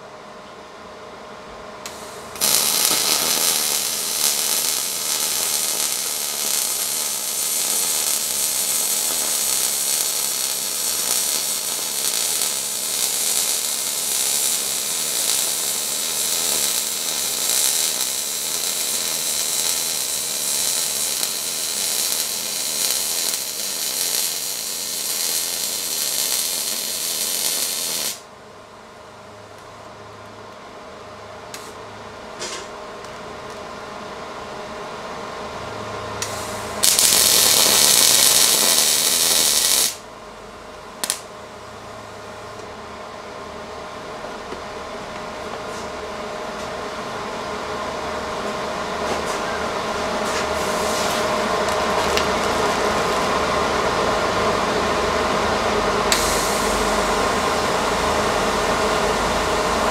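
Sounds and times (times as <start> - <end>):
welder arc hissing: 1.8 - 28.3, 31.5 - 31.8, 36.2 - 40.0, 41.0 - 41.3, 48.4 - 59.9.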